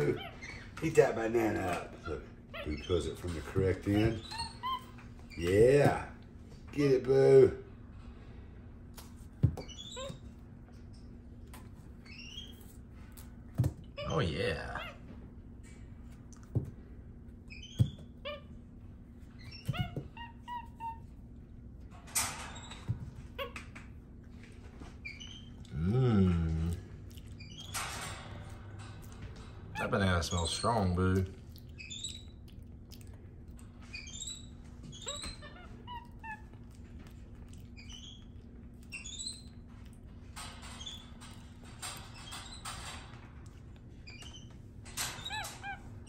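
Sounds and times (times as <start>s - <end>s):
monkey chirping and squeaking: 2.0s - 5.0s, 9.6s - 10.4s, 12.0s - 12.8s, 17.5s - 18.6s, 19.3s - 21.2s, 22.5s - 23.8s, 25.0s - 25.6s, 27.3s - 27.8s, 31.5s - 32.5s, 33.8s - 36.7s, 37.4s - 39.7s, 40.8s - 41.2s, 44.0s - 46.0s
monkey chirping: 31.6s - 32.4s, 33.9s - 36.5s, 37.8s - 39.5s.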